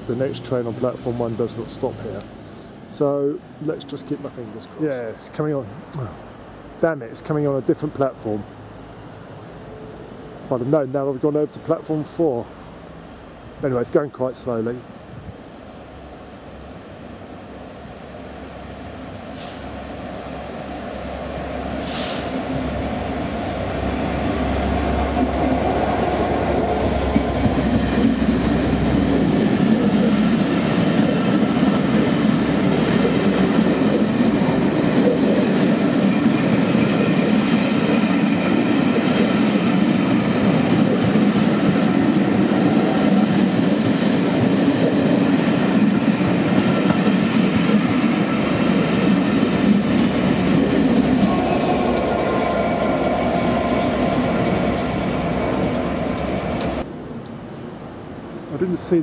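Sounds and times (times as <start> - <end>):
wheels rumbling on rail: 0.0 - 57.2
diesel locomotive engine humming: 0.0 - 57.3.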